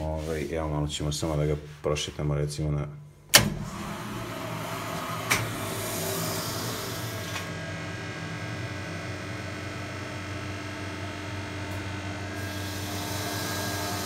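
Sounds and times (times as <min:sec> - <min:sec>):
pump motor humming: 0:03.4 - 0:14.0.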